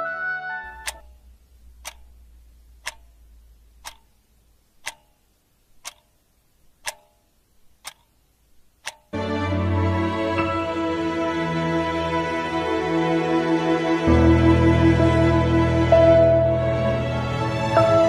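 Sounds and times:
music: 0:00.0 - 0:01.2, 0:09.1 - 0:18.0
clock ticking: 0:00.6 - 0:09.2.

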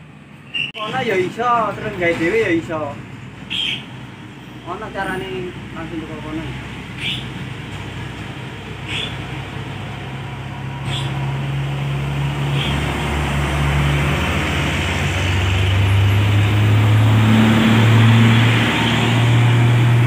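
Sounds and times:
truck diesel engines running: 0:00.0 - 0:20.0
short high squeaks: 0:00.4 - 0:00.8.

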